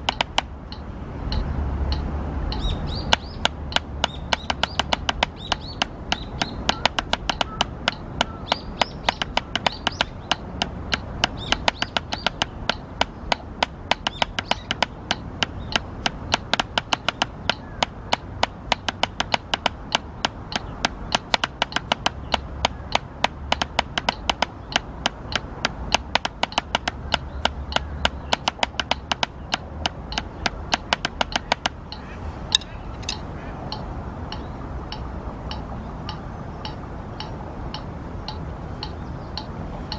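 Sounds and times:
drumsticks on practice pad: 0:00.0 - 0:39.9.

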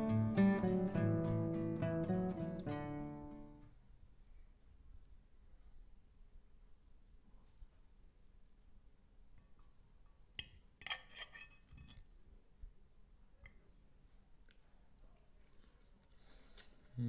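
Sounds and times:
fork clinking on a plate: 0:10.4 - 0:12.1.

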